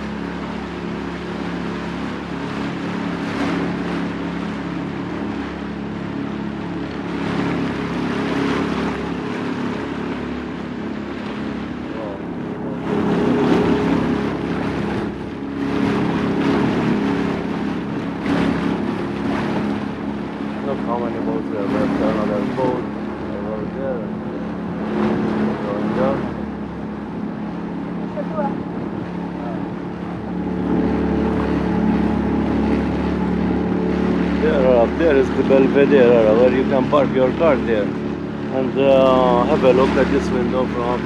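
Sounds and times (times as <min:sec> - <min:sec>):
boat engine running: 0:00.0 - 0:41.0
water noise: 0:00.0 - 0:41.0.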